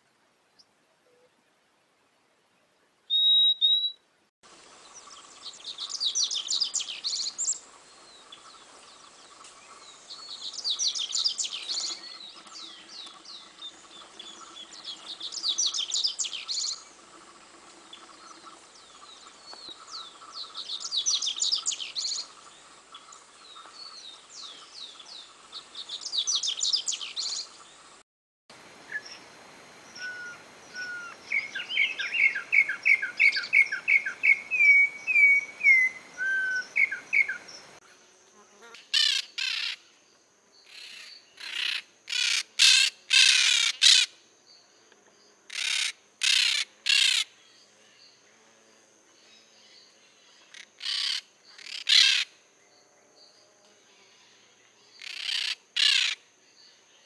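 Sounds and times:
bird singing high trills: 3.1 - 4.0, 30.0 - 37.7.

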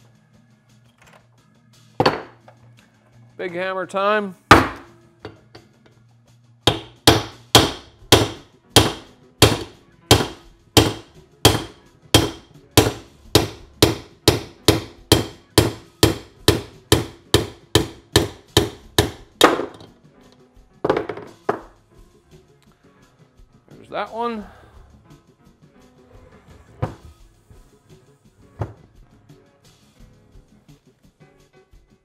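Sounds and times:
hammer striking metal: 4.5 - 5.7, 6.7 - 19.9.

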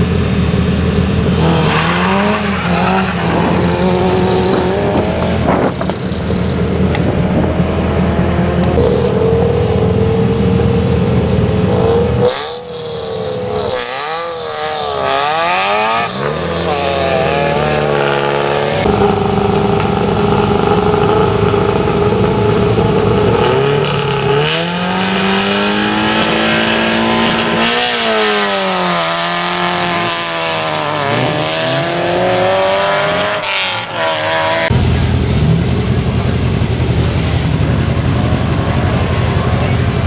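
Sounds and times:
rally car engines revving: 0.0 - 40.0
car idling close by: 34.7 - 40.0.

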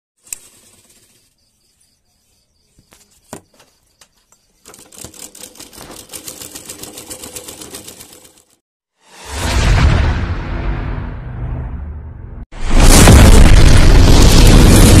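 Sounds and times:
sewing machine stitching: 4.6 - 8.6.

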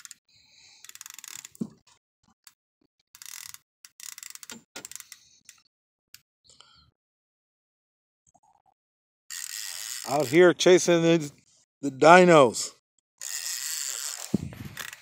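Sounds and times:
fishing reel clicker clicking: 0.0 - 0.2, 0.8 - 1.6, 3.2 - 5.6, 9.3 - 10.4, 13.2 - 15.0.

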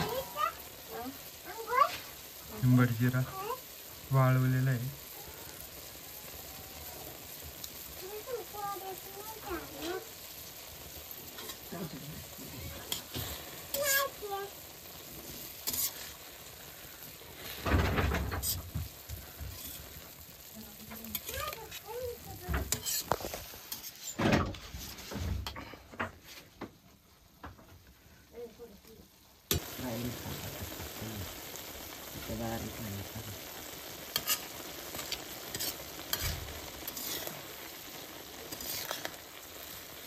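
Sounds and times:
food sizzling in a pan: 0.0 - 40.0
spoon scraping and knocking pan: 15.6 - 16.2, 17.4 - 20.2, 22.5 - 26.3, 34.1 - 37.4, 38.5 - 39.2.

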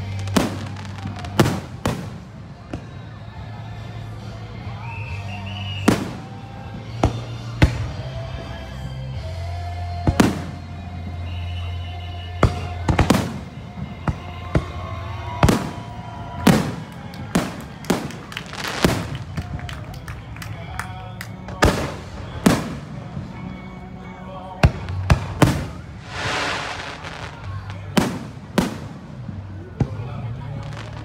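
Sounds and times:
fireworks bursting with bangs: 0.0 - 3.2, 5.7 - 8.2, 10.0 - 11.2, 12.4 - 19.7, 21.5 - 23.5, 24.6 - 31.0.

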